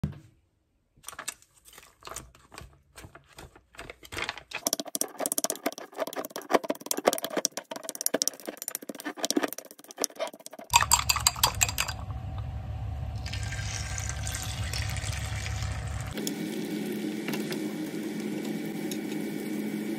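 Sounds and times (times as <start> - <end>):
rice paddle scraping glass bowl: 4.8 - 11.0.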